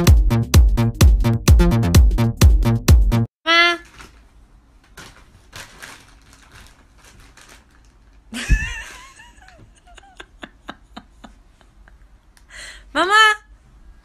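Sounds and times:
bedding rustling and clicking: 3.8 - 9.8.

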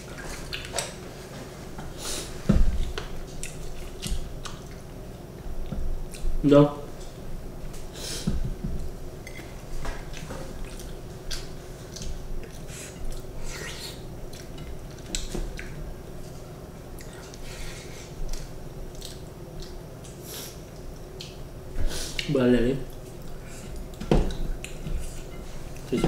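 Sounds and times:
chewing and lip smacks: 3.2 - 4.9, 10.1 - 13.3, 13.9 - 15.8, 18.3 - 21.4
wet squishing of food: 18.2 - 21.4.

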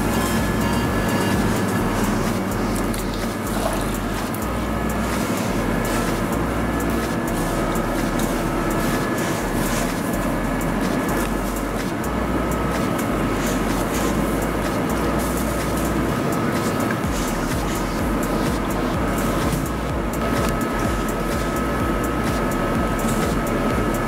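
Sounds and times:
bakery machinery drone: 0.0 - 24.0.

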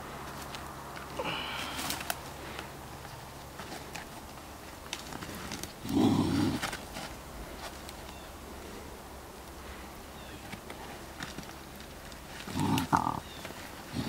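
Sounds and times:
brush rustling and snapping: 0.0 - 14.0.

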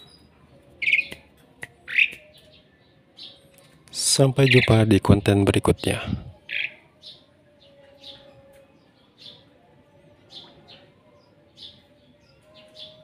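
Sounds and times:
starling chirping: 0.0 - 1.2, 4.1 - 8.3.

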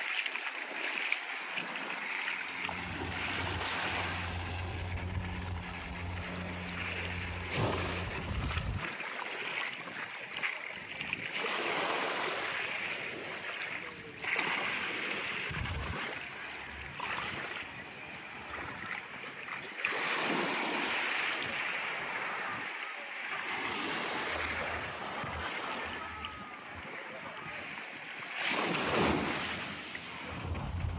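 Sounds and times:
surf washing onto beach: 0.0 - 19.3, 19.9 - 30.9.

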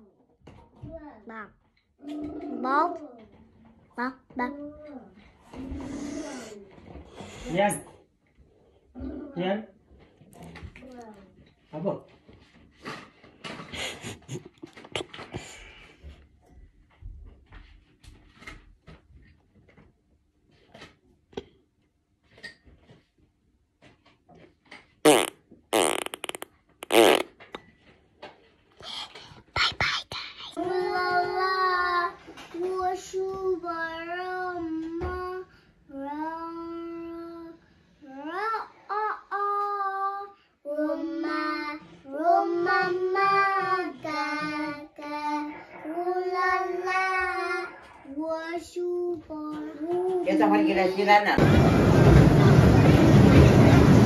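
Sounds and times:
fart-like sputtering: 25.1 - 27.4
child singing: 30.6 - 37.6, 38.2 - 50.2.

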